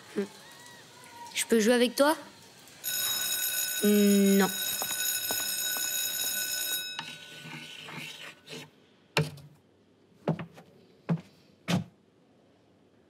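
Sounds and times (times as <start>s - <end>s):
electric bell ringing: 2.8s - 7.6s.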